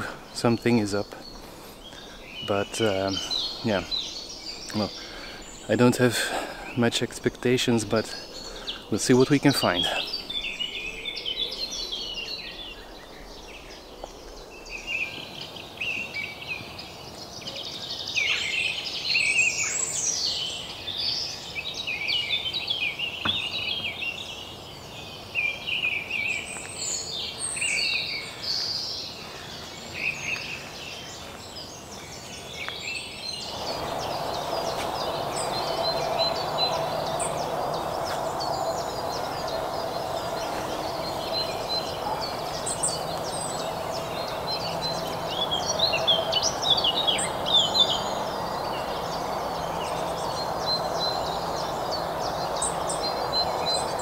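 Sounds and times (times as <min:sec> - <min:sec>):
steady rushing hum: 0:00.0 - 0:14.9, 0:30.7 - 0:54.0
songbirds singing: 0:00.0 - 0:54.0.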